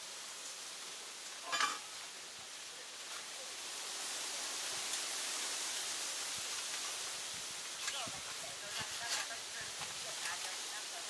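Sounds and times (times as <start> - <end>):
steady outdoor hiss: 0.0 - 11.0.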